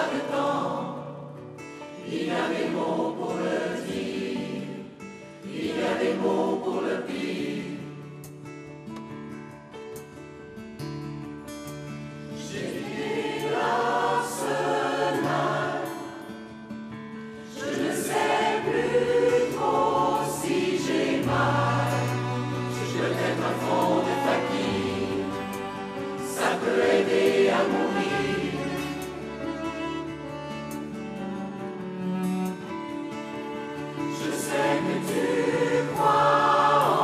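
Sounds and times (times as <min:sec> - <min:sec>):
mixed choir singing: 0:00.0 - 0:08.2, 0:12.4 - 0:16.5, 0:17.4 - 0:30.0, 0:33.2 - 0:37.0
instrumental accompaniment: 0:08.2 - 0:37.0.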